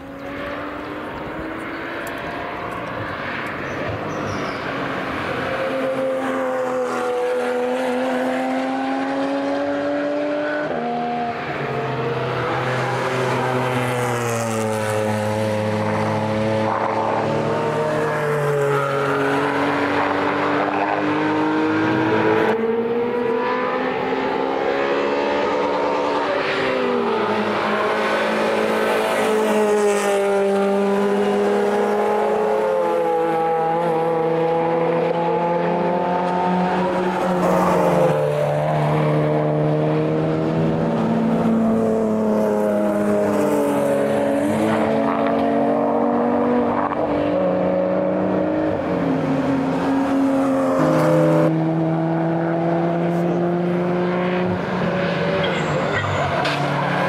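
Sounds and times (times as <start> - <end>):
race car engines: 0.0 - 57.0.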